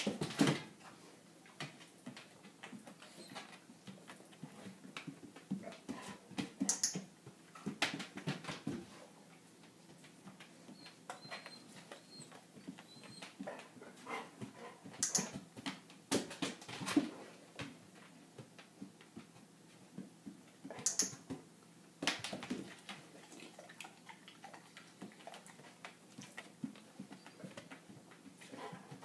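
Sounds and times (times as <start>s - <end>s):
dog footfalls and knocks: 0.0s - 0.8s
dog whimpering: 10.7s - 13.5s
dog claws clicking on floor: 20.7s - 21.4s.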